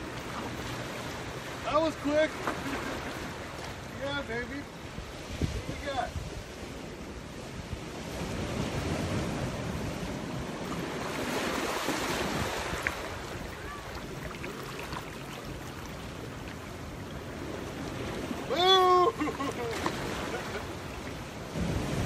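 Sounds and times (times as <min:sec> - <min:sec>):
ocean surf: 0:00.0 - 0:22.0
wind buffeting microphone: 0:04.8 - 0:18.5.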